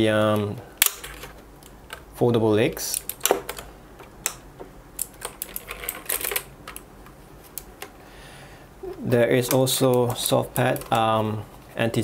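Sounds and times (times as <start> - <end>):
plastic keyboard being handled: 0.8 - 2.1, 2.8 - 8.0, 9.4 - 11.2.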